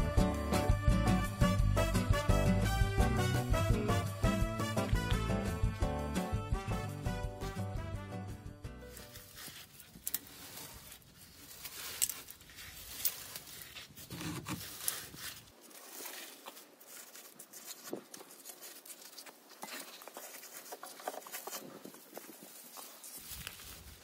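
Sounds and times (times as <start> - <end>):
dry grass and twigs rustling: 8.8 - 24.0.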